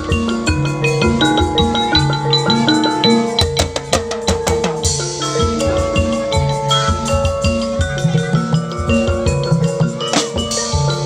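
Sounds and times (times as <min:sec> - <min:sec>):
melody of short fading notes: 0:00.0 - 0:08.8
steady drum beat: 0:00.0 - 0:11.0.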